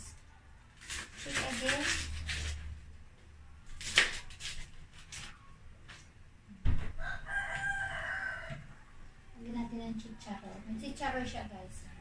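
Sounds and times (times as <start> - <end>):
knife cutting cabbage: 0.8 - 2.8, 3.7 - 5.4
rooster crowing: 6.9 - 8.9.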